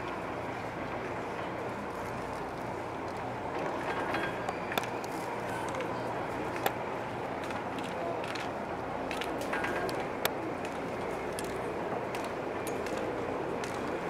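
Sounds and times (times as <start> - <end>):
steady outdoor noise: 0.0 - 14.0
faint voices: 5.0 - 14.0.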